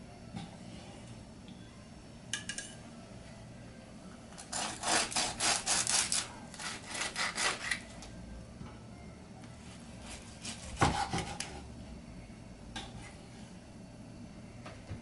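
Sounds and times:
knife sawing through crackling skin: 4.5s - 7.8s.

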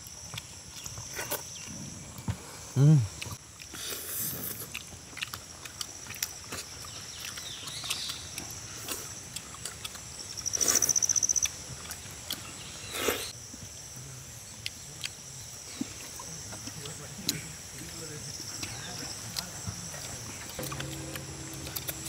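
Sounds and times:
rapid high-pitched trill: 20.6s - 22.0s.

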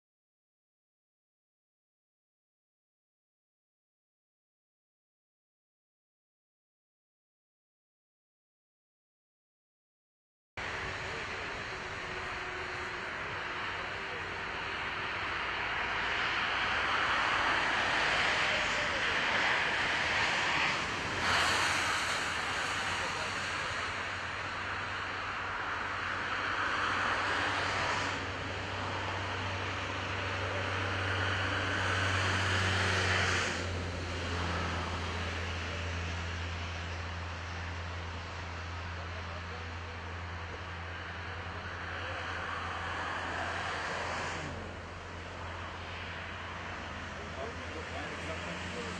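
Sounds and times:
heavy trucks and machinery running: 10.6s - 48.9s
rushing noise: 10.6s - 48.9s.

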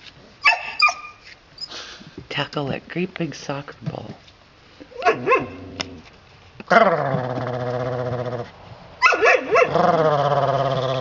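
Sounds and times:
puppy barks: 0.4s - 1.2s, 5.0s - 5.6s, 9.0s - 9.8s
puppy growling: 5.0s - 6.1s, 6.7s - 8.5s, 9.5s - 11.0s.

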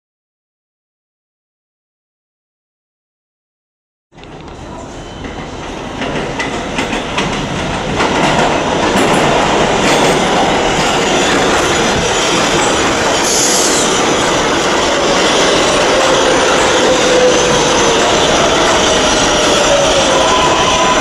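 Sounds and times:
subway train wheels rumbling: 4.1s - 21.0s
high-pitched train squeal: 4.5s - 6.0s, 10.2s - 21.0s.

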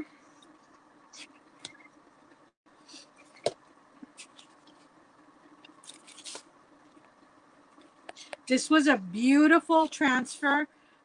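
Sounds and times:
plastic sheets and card rustling: 5.7s - 7.0s.

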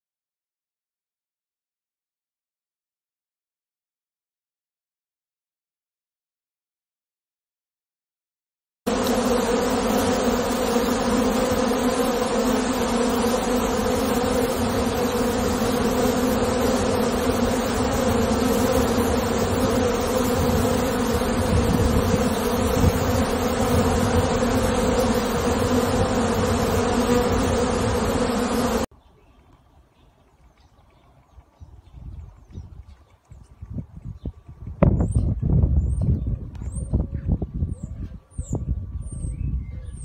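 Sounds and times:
bees buzzing: 8.9s - 28.9s.

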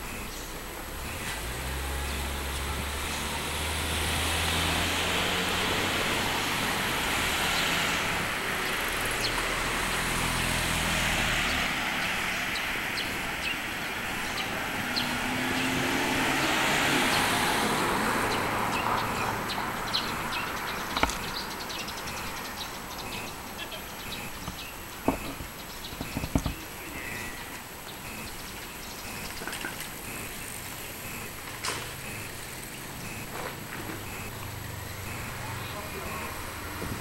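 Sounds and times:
cars passing: 0.0s - 37.0s
low engine hum: 27.2s - 37.0s.

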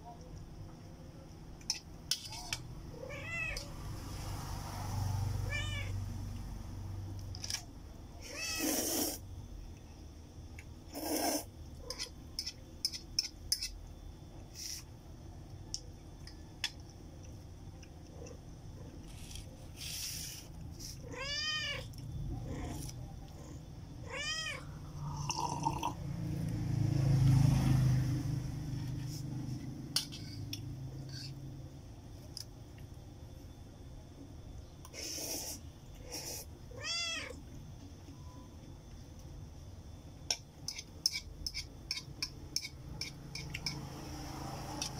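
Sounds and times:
cat meowing: 2.9s - 3.7s, 5.4s - 6.0s, 8.2s - 8.9s, 21.0s - 21.9s, 24.0s - 24.8s, 36.7s - 37.4s
utensils clicking on a bowl: 11.9s - 13.8s, 40.3s - 43.9s.

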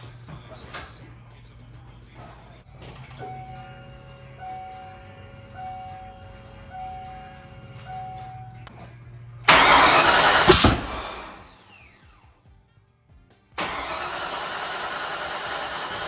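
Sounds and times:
engine cranking and firing: 9.4s - 12.0s, 13.6s - 16.0s.

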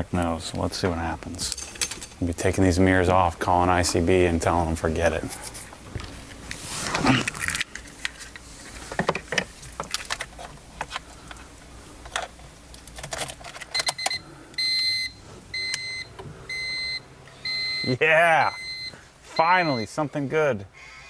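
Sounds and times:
handling clicks and rattles: 7.4s - 14.2s
car warning chime beeping: 13.8s - 20.0s.

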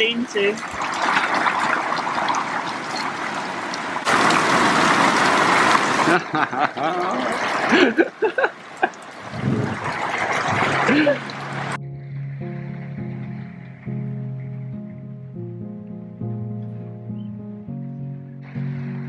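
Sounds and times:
heavy rain pouring: 0.0s - 11.8s.

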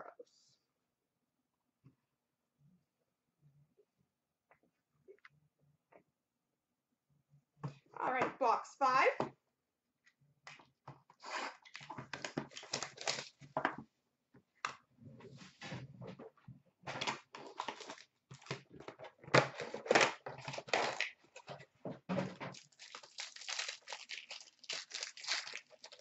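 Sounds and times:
plastic wrapping crinkling: 11.7s - 13.4s, 22.5s - 26.0s.

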